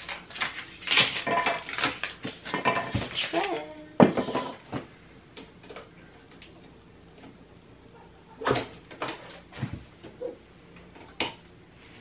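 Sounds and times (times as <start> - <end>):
handling knocks and rustles: 8.4 - 10.2.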